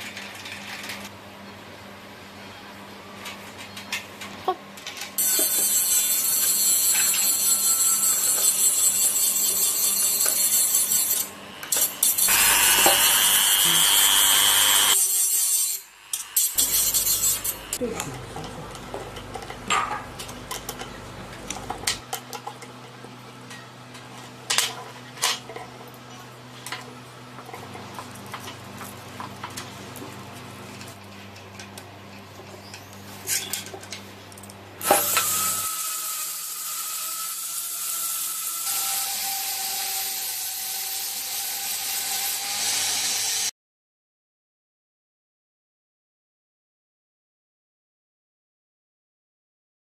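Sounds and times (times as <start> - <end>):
rotary tool grinding steel: 5.2 - 17.8, 34.8 - 43.5.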